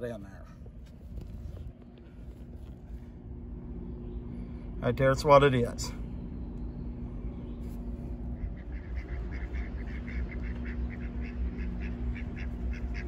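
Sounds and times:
faint steady hum: 0.0s - 13.0s
ducks quacking: 8.4s - 13.0s.

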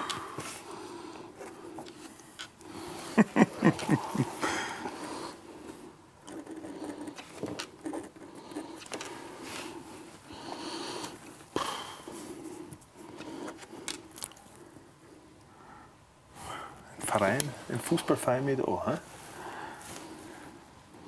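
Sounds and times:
pens scratching on paper: 6.2s - 9.9s.

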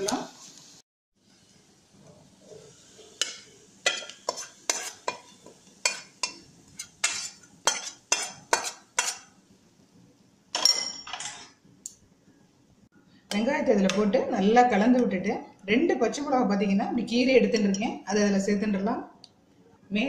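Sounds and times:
spoon rasping on pan: 2.4s - 9.3s
metal spoon clinking against pan: 3.2s - 9.3s, 10.6s - 11.5s.

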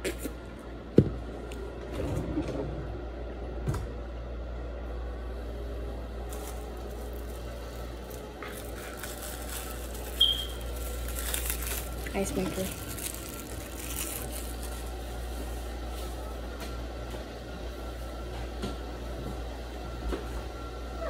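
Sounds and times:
steady low hum: 0.0s - 21.0s
rustling and scraping: 6.3s - 16.2s.

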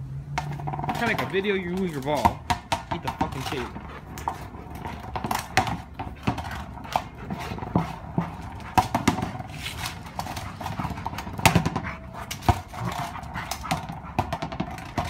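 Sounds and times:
ball knocking on concrete: 0.3s - 15.0s
dog panting: 3.0s - 15.0s.

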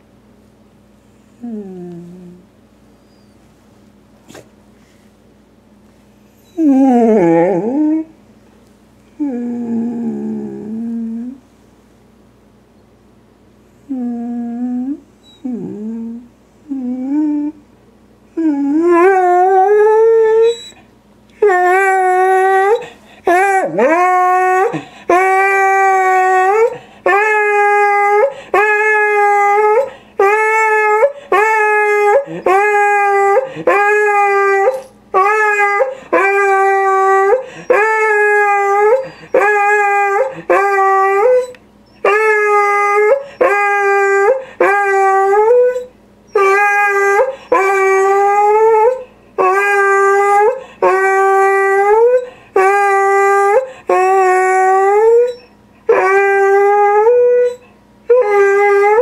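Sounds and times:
dog whimpering: 1.4s - 2.4s, 3.0s - 3.4s, 6.3s - 8.1s, 9.2s - 11.4s, 13.9s - 17.6s, 18.4s - 59.0s
dog howling: 6.5s - 8.1s, 18.4s - 20.8s, 21.4s - 59.0s.

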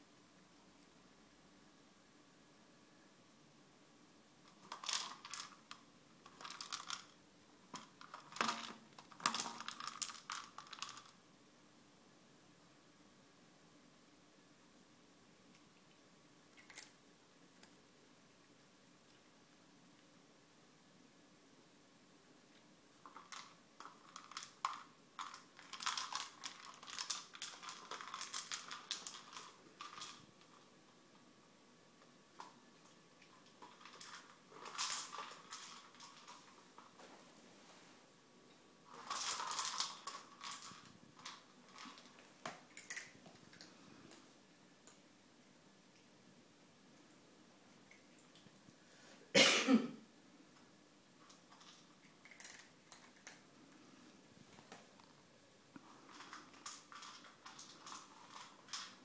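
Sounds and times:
treat ball rattling on tiles: 4.5s - 11.2s, 23.0s - 30.7s, 33.4s - 37.0s, 38.9s - 43.7s, 51.3s - 53.4s, 55.8s - 59.0s.

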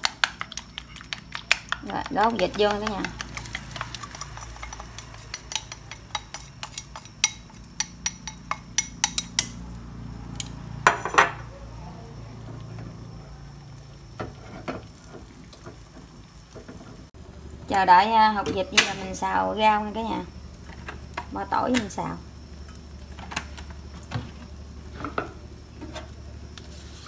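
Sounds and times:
utensil clinking on a bowl: 0.2s - 9.6s
utensil scraping a bowl: 2.4s - 9.2s, 26.6s - 27.0s.

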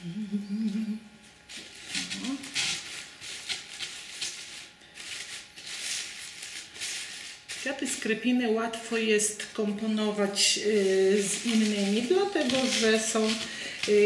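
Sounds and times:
person humming: 0.0s - 1.1s
paper flowers rustling: 1.5s - 8.2s, 9.7s - 14.0s.

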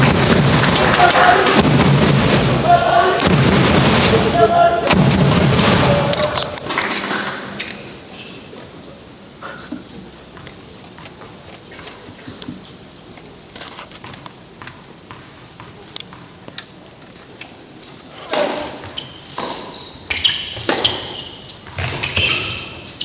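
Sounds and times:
shoes squeaking on court: 18.6s - 23.0s.

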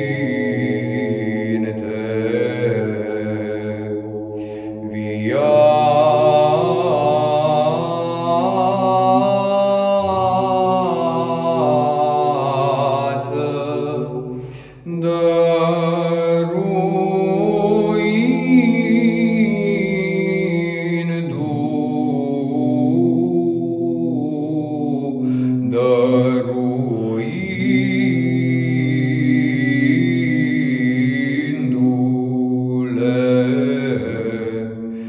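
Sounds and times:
low held drone: 0.0s - 35.0s.

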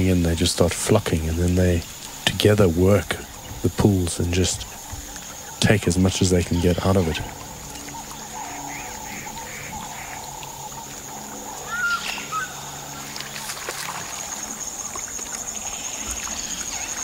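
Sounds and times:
water splashing and trickling: 0.0s - 17.0s
bird chirping call: 3.2s - 13.5s.

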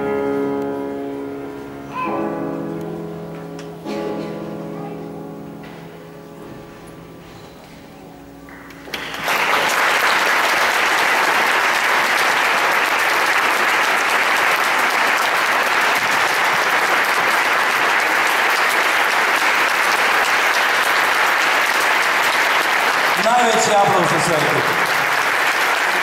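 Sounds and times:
grand piano notes: 0.0s - 9.2s
audience applause: 8.5s - 26.0s.

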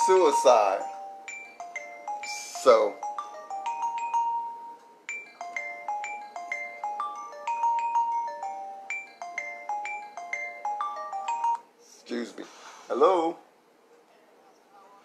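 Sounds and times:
phone marimba ringtone: 0.0s - 11.7s.

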